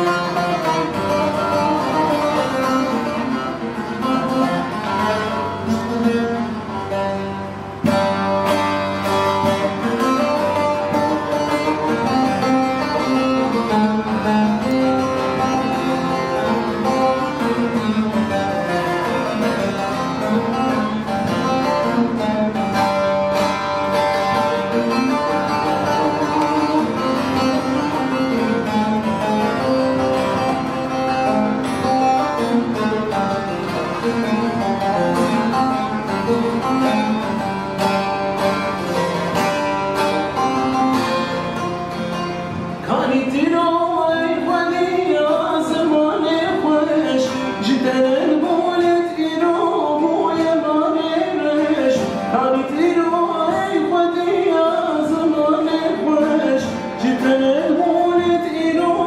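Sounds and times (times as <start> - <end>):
plucked saz melody: 0.0 - 59.0
man singing: 42.8 - 59.0.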